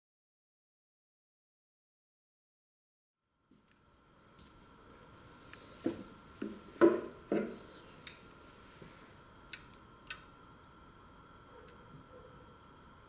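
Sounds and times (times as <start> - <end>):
faint high whine: 3.2 - 13.0
sharp clicks: 9.5 - 10.3.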